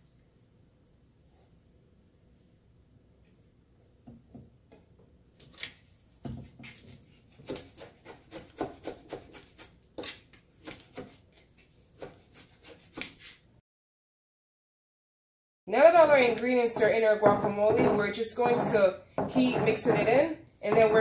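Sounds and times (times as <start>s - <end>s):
knife chopping on plastic board: 7.3s - 11.2s, 11.9s - 13.2s, 16.8s - 20.1s, 20.7s - 21.0s.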